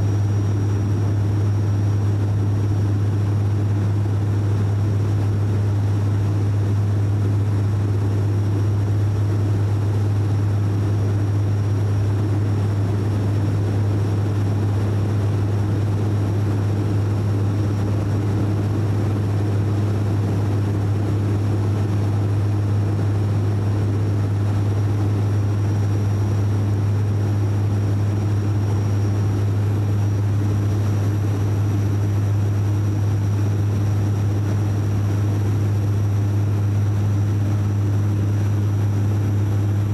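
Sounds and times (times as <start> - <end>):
faint high whine: 0.0 - 39.9
propeller drone: 0.0 - 39.9
engine and air rush: 16.2 - 39.9.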